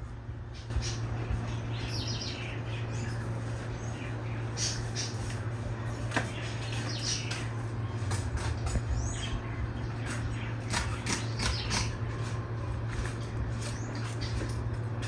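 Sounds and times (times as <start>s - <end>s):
birds chirping: 0.0s - 15.0s
steady low hum: 0.0s - 15.0s.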